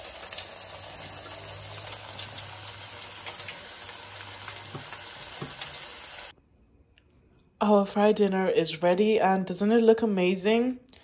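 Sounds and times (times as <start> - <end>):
food sizzling in deep fryer: 0.0 - 6.3.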